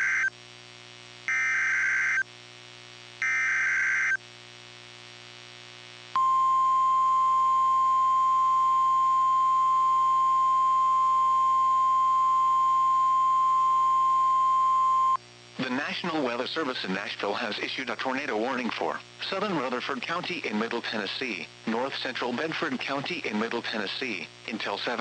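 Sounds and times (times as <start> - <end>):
screeching data tones: 0.0 - 0.3, 1.3 - 2.2, 3.2 - 4.2
steady warning alarm tone: 1.3 - 2.2, 3.2 - 4.2.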